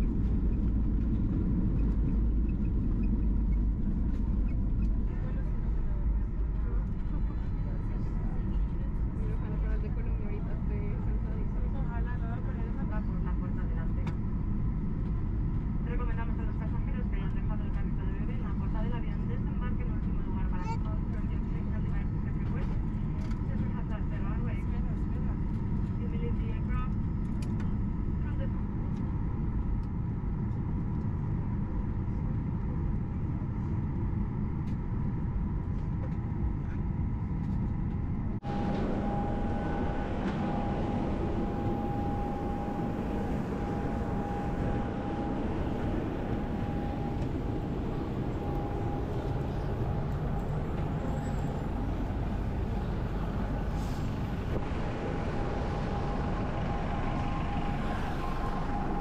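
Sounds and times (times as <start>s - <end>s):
aircraft cabin rumble: 0.0s - 59.0s
jet engine whine: 0.0s - 59.0s
idling buses: 38.4s - 59.0s.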